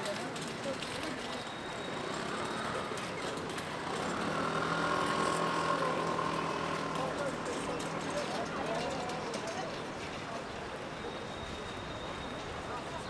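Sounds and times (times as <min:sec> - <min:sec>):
street noise: 0:00.0 - 0:13.0
vehicle engine running: 0:01.8 - 0:09.4.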